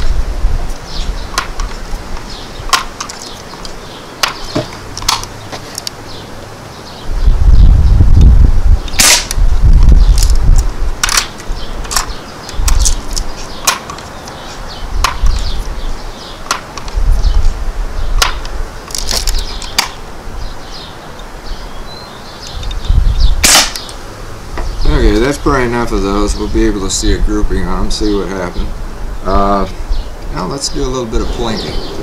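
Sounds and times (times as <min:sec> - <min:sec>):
loud air rifle shot: 0:08.9 - 0:09.4, 0:23.4 - 0:23.9
air rifle clicks and snaps: 0:10.2 - 0:14.4
low rumble: 0:31.2 - 0:32.0.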